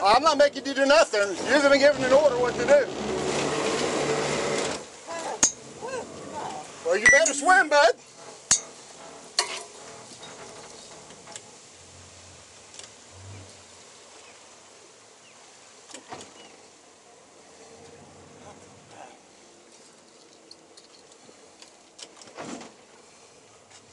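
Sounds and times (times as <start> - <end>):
outboard motor humming: 1.2 - 7.0.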